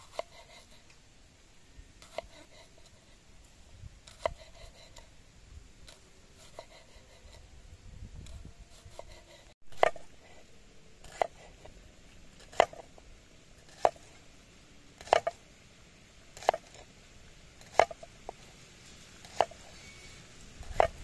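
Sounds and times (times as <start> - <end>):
knife slicing on wooden board: 0.0 - 0.9, 4.0 - 5.1, 11.0 - 11.7, 12.4 - 12.9, 19.2 - 19.9, 20.6 - 21.0.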